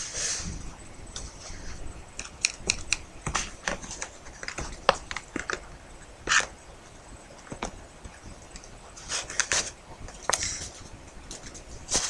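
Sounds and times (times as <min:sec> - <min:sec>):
paper clicking and crackling: 0:02.2 - 0:05.7, 0:08.5 - 0:12.0
paper rustling: 0:09.0 - 0:12.0.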